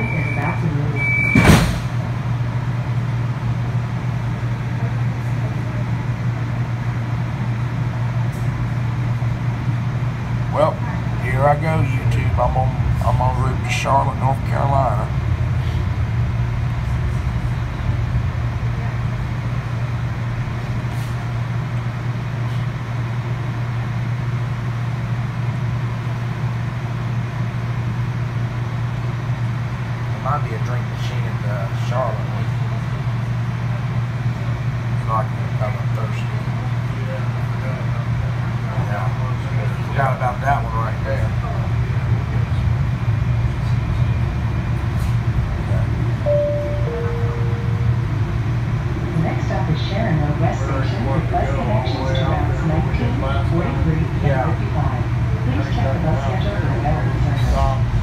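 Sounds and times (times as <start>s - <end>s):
train car low hum: 0.0s - 58.0s
train doors closing thump: 0.3s - 2.2s.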